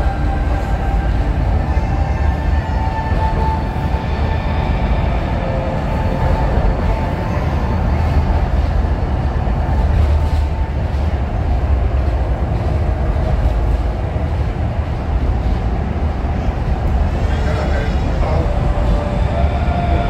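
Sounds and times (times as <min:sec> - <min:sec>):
train rumbling through tunnel: 0:00.0 - 0:20.0.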